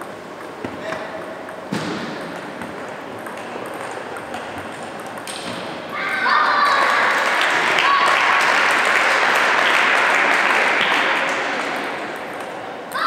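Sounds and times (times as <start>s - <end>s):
sports hall background: 0.0s - 13.0s
table tennis ball clicking: 0.3s - 5.6s
applause: 6.7s - 11.8s.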